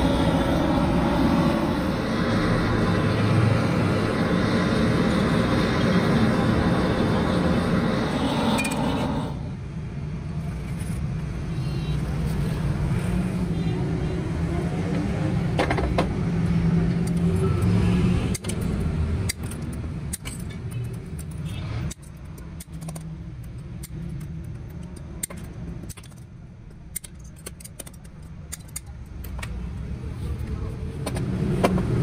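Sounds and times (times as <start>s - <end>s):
low rumble: 0.0s - 9.8s.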